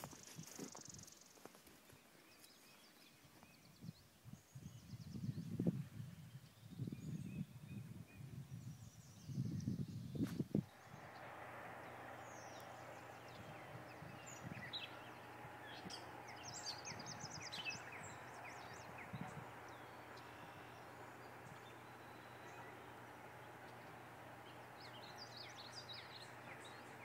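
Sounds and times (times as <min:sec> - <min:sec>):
small birds chirping: 0:00.0 - 0:27.0
steady low hiss: 0:10.1 - 0:27.0.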